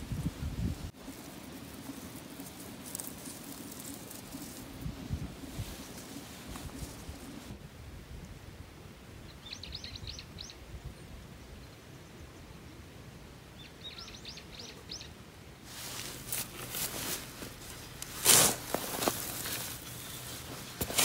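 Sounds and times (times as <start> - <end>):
rustling and scraping in plants: 0.0 - 7.6, 15.6 - 21.0
songbird singing: 9.2 - 15.4
low outdoor rumble: 15.2 - 21.0.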